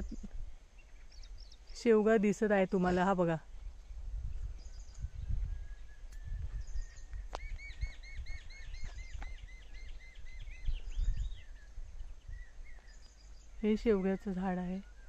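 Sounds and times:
low microphone rumble: 2.7s - 13.7s
small bird chirping: 4.2s - 15.0s.

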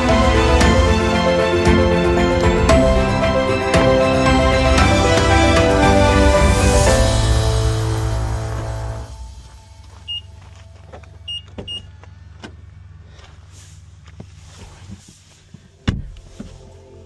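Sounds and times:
car door shutting with thump: 15.8s - 16.4s.

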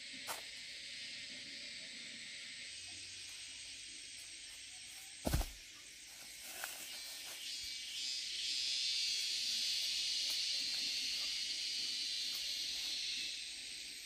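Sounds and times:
high-pitched insect hiss: 0.0s - 14.0s
loud sharp thump: 5.2s - 5.6s.

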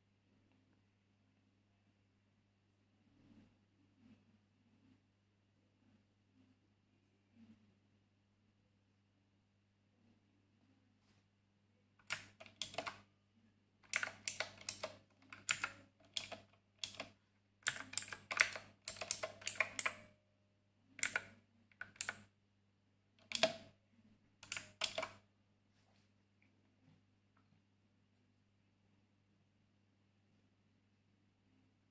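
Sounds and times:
mechanical keyboard key clicks: 12.0s - 13.0s, 13.8s - 20.0s, 21.0s - 22.2s, 23.2s - 23.6s, 24.4s - 25.2s.

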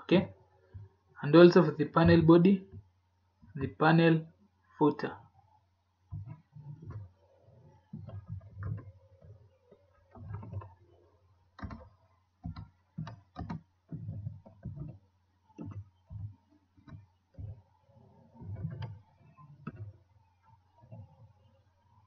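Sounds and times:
faint steady hum: 0.0s - 22.0s
computer keyboard typing: 11.6s - 15.0s, 15.6s - 17.6s.

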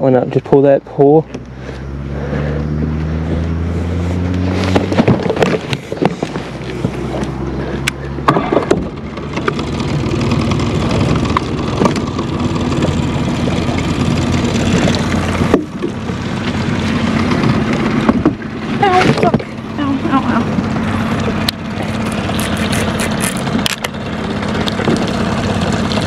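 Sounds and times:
boat motor humming: 1.0s - 26.0s
knocks and clunks on boat: 17.4s - 19.6s.

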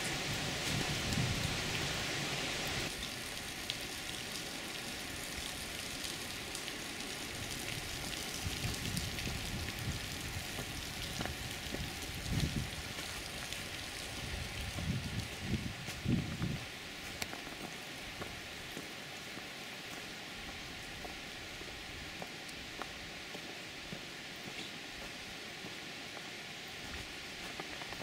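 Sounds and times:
water dripping: 2.9s - 15.4s.

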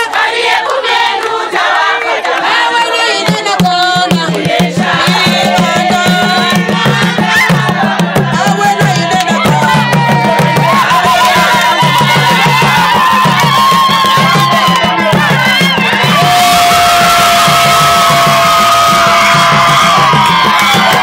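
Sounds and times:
woman singing: 2.5s - 7.7s
hand drums fast rhythm: 2.8s - 21.0s.

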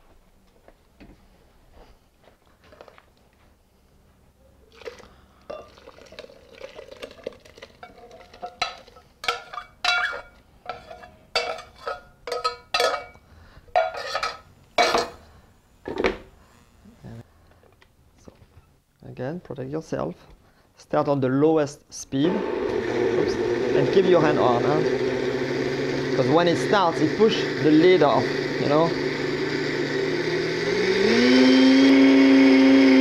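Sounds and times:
soup pouring into glass jar: 4.7s - 9.1s
utensil clanking inside metal pot: 5.5s - 15.2s.

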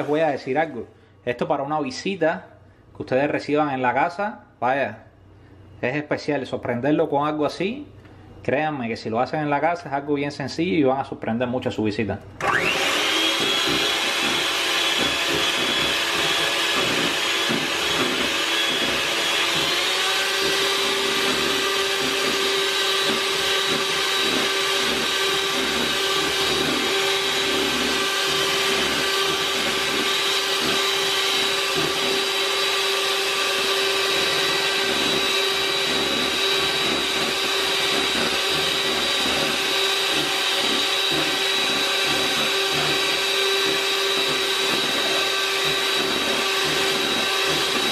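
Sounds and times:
electric hand mixer whipping: 0.0s - 0.4s, 12.4s - 47.9s.

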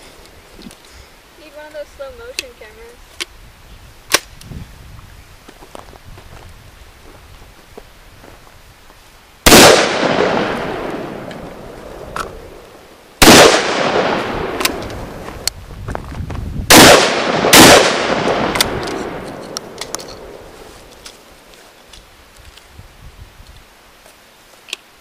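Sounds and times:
shotgun blasts with echo: 9.5s - 11.4s, 13.2s - 14.8s, 16.7s - 20.4s.

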